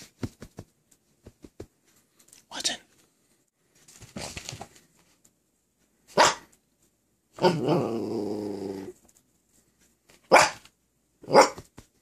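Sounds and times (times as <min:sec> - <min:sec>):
scuffle of movement: 0:03.6 - 0:05.3
puppy barking: 0:06.1 - 0:06.5, 0:07.4 - 0:07.9, 0:10.3 - 0:11.7
puppy growling: 0:07.4 - 0:09.0.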